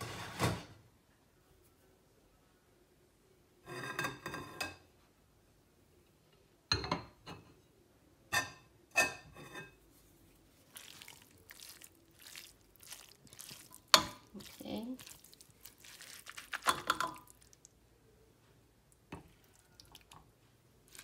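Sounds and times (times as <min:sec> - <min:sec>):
plates clinking against metal pot: 0:08.3 - 0:09.8, 0:13.9 - 0:14.4, 0:16.6 - 0:17.3.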